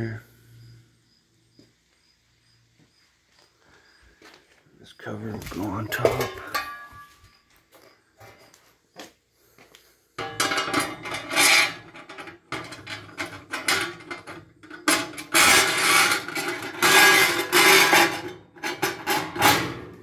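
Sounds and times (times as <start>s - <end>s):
sheet steel scraping on metal: 5.6s - 7.2s, 10.2s - 20.0s.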